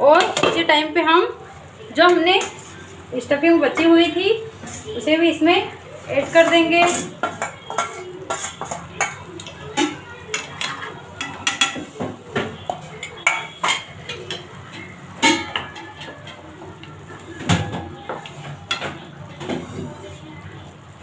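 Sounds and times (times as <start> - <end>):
spoon scraping a steel bowl: 4.6 - 5.0, 6.1 - 9.2.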